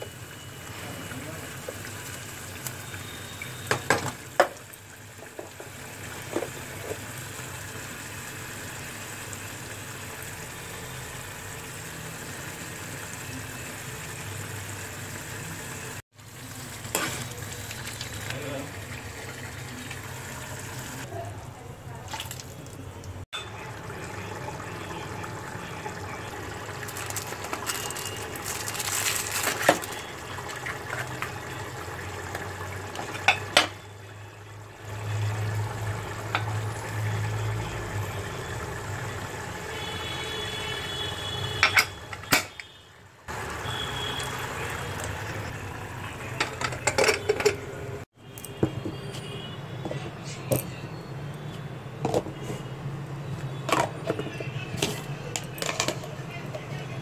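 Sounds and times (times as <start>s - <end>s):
liquid sounds: 16.2s - 39.9s
pots and spoons clinking: 33.0s - 33.8s, 41.6s - 42.6s, 46.4s - 47.7s, 53.7s - 56.1s.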